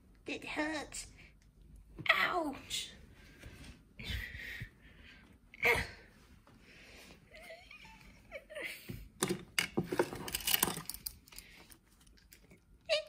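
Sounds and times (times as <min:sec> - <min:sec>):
objects knocking and rustling: 0:08.9 - 0:11.4.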